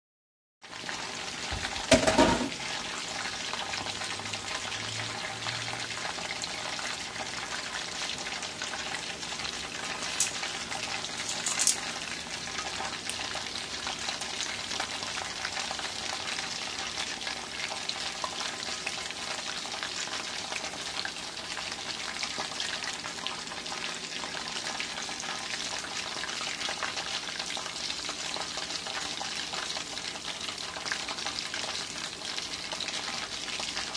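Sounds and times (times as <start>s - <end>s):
oil sizzling and crackling: 0.6s - 33.9s
loud knock: 1.6s - 2.5s.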